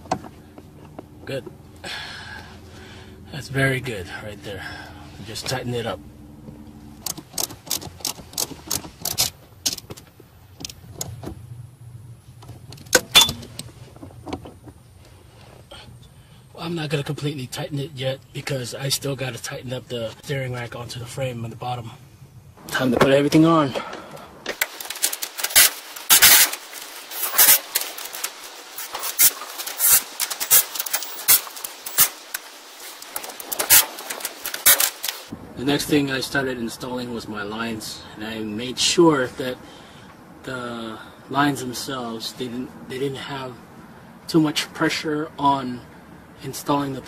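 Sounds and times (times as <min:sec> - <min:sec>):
ratcheting wrench clicking: 0:07.0 - 0:09.9, 0:24.5 - 0:35.3.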